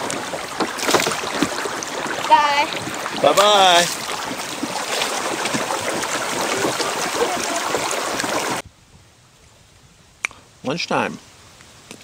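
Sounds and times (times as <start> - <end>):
river water splashing and rushing: 0.0 - 8.6.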